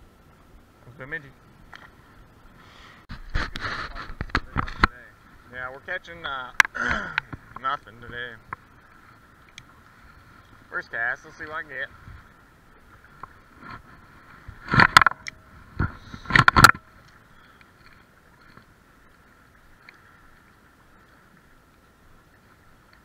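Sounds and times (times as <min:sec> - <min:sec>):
faint steady hum: 0:00.0 - 0:23.0
knocks and rustling near microphone: 0:03.1 - 0:05.0, 0:13.2 - 0:16.9.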